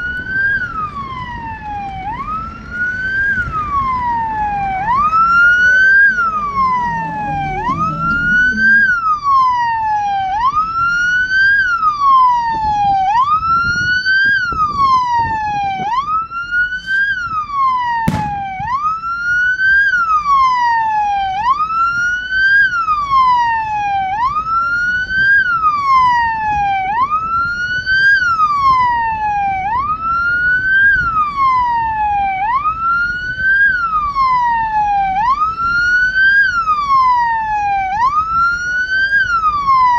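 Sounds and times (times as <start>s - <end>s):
electronic siren sweeping: 0.0s - 21.8s.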